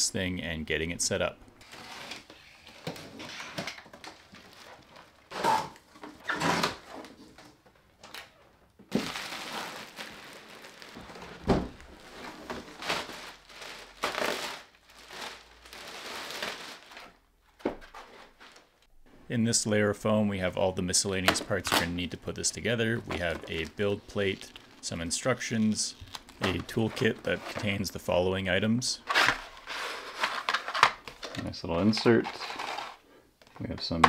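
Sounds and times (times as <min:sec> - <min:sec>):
plastic wrapping crinkling: 0:01.6 - 0:05.9, 0:08.0 - 0:18.9, 0:21.0 - 0:28.0.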